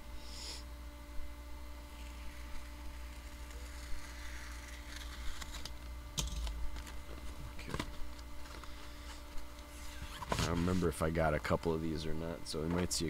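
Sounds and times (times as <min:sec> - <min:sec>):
paper envelope rustling: 0:02.0 - 0:10.9.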